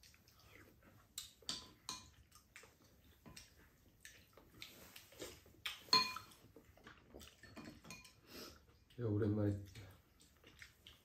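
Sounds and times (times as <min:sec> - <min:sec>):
wet eating and slurping: 0:00.0 - 0:11.0
cutlery clinking against bowls: 0:01.2 - 0:02.3, 0:05.7 - 0:06.4, 0:07.2 - 0:08.2.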